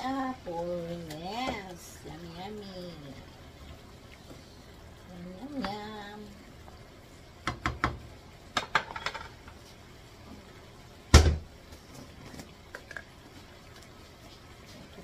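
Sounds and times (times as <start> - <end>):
loud knock with low thud: 11.1 - 11.5.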